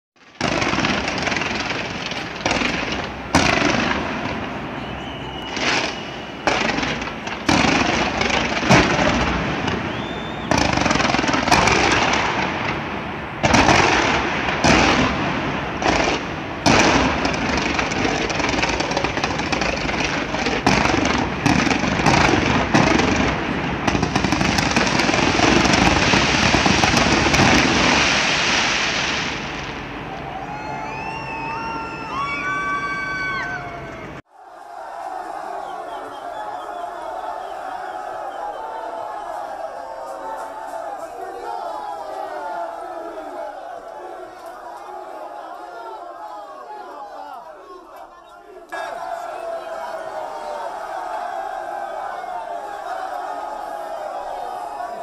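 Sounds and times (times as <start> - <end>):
fireworks crackling: 0.2 - 30.2
fireworks bangs: 0.2 - 33.3
firework whistle: 0.4 - 34.2.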